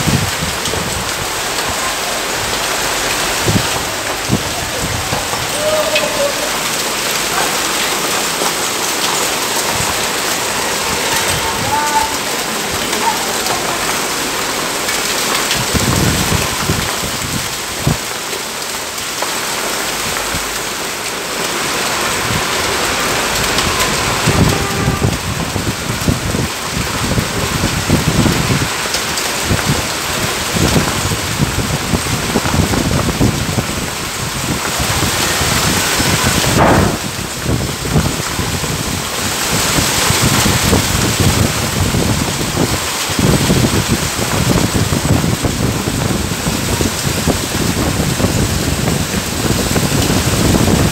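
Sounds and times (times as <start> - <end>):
low rumbling surges: 0.0 - 16.4, 36.2 - 38.1
torrential rain on pavement: 0.0 - 50.9.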